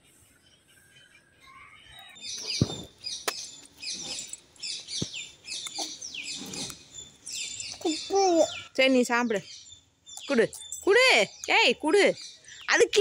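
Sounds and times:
thump: 0:02.6 - 0:03.0.

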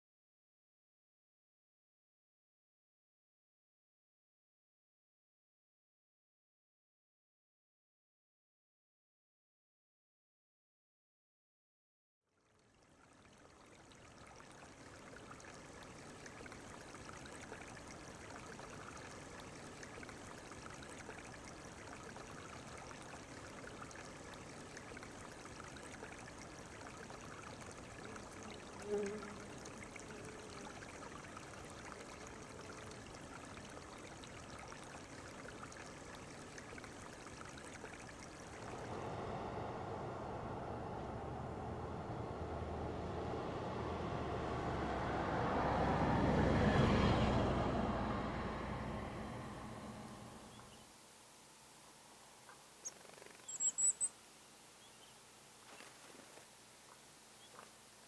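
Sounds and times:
shallow river flowing: 0:12.3 - 0:58.0.

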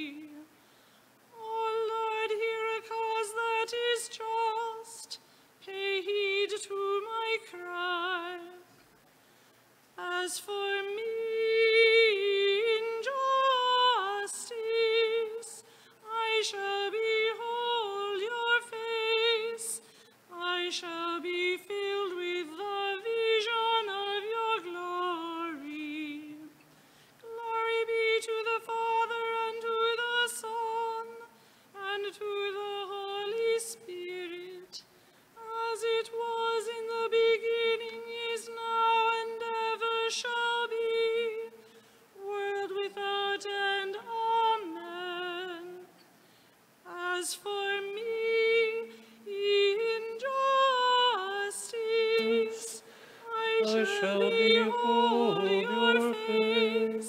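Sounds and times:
person chanting: 0:53.4 - 0:57.0.

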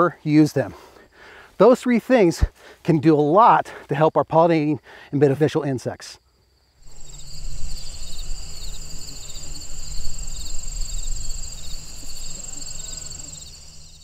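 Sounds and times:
crickets trilling: 0:05.6 - 0:14.0.

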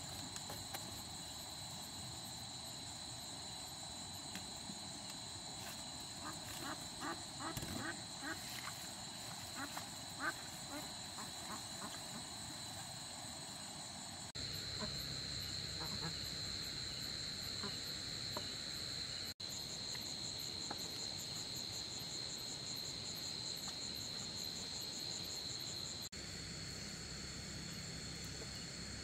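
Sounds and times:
crickets and insects trilling: 0:00.0 - 0:29.0.

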